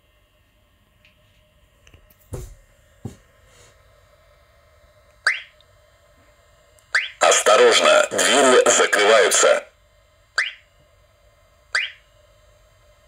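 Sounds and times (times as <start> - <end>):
rising electronic chirp: 5.3 - 5.5, 7.0 - 7.2, 10.4 - 10.6, 11.8 - 12.0.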